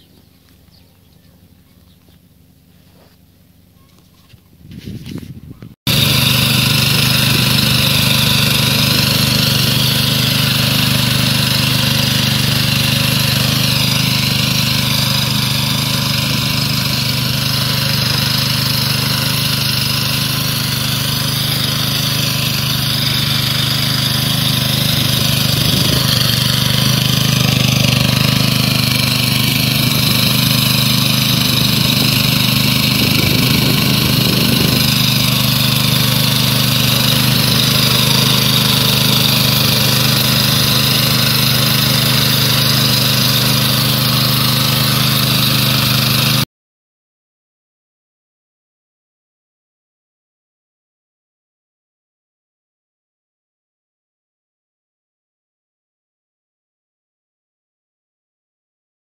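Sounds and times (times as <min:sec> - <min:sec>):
small engine running under load: 0:00.0 - 0:46.5.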